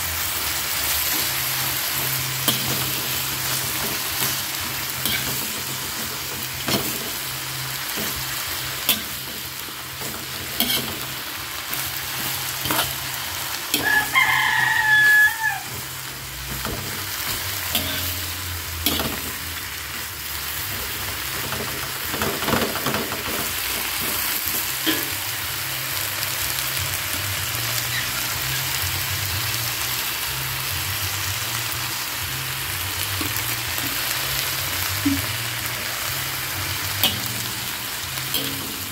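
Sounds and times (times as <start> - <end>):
vegetables sizzling in a wok: 0.0 - 38.9
metal spatula scraping: 1.0 - 25.2, 36.7 - 38.9.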